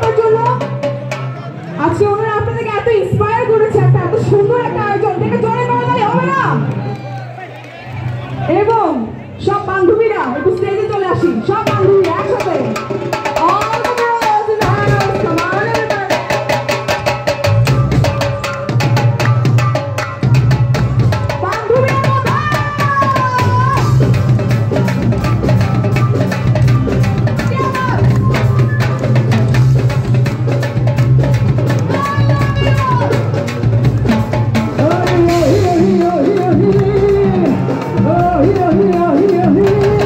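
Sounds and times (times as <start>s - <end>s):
drum kit beat: 10.8s - 40.0s
bass: 17.4s - 40.0s.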